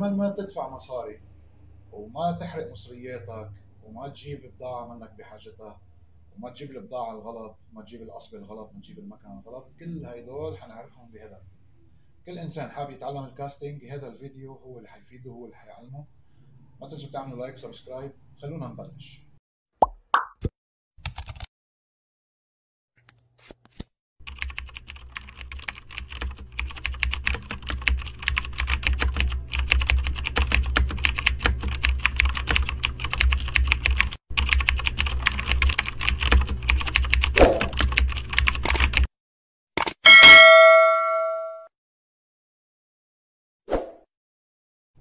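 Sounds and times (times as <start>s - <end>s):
notification bell ding: 40.1s - 41.7s.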